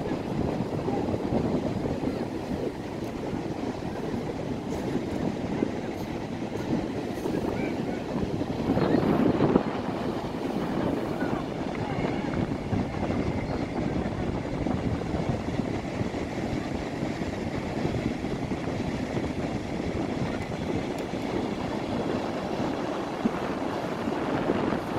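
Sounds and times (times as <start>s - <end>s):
wind buffeting microphone: 0.0s - 24.9s.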